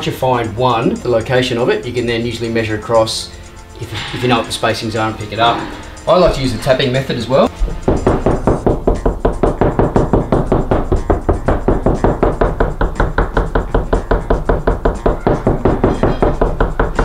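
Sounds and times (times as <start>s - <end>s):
knuckles knocking on wall: 7.6s - 17.0s.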